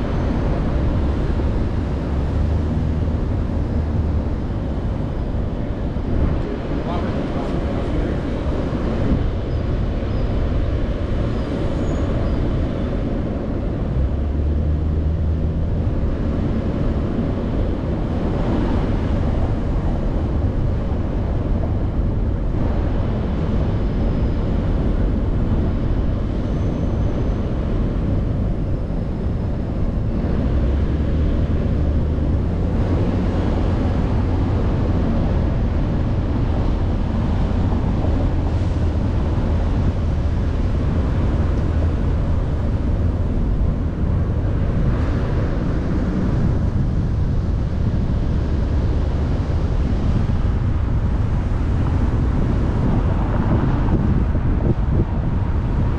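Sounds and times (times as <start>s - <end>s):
car engine rumble: 0.0s - 55.9s
tyres on road: 0.0s - 55.9s.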